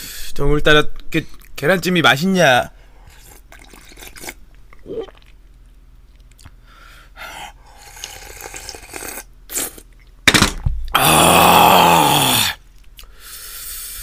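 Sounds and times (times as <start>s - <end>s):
slurping soft food: 7.7s - 9.9s.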